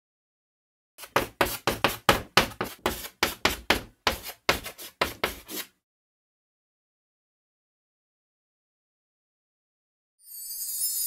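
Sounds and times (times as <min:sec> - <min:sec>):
chalk scratching on blackboard: 0:01.0 - 0:05.8.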